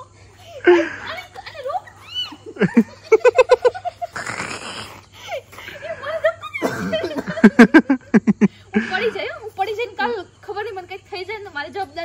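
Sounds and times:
people laughing: 0:00.6 - 0:09.2.

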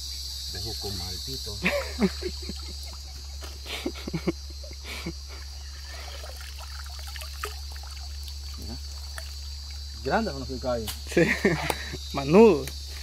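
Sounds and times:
water pouring off net: 0:05.8 - 0:09.9
splashes in water: 0:05.8 - 0:10.0.

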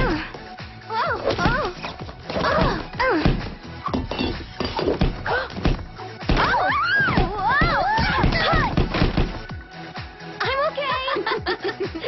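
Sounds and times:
voices or music: 0:00.0 - 0:12.0
dull thunks and knocks: 0:01.3 - 0:09.5.

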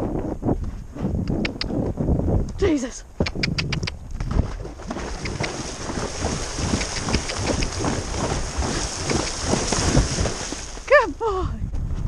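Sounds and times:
wind buffeting microphone: 0:00.0 - 0:12.0
hooves splashing through water: 0:03.7 - 0:11.3.

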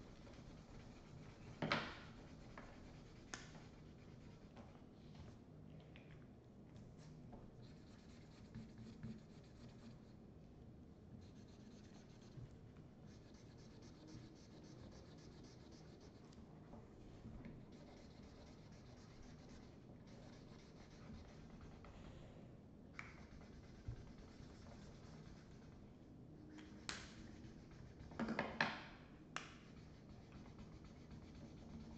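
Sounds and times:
markers scribbling on paper: 0:00.0 - 0:04.5, 0:07.6 - 0:10.0, 0:13.1 - 0:16.2, 0:17.7 - 0:22.0, 0:23.0 - 0:25.8, 0:29.7 - 0:31.9.

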